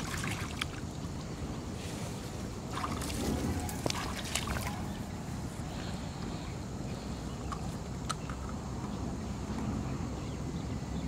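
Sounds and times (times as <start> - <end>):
water splashing and trickling: 0.0 - 6.2.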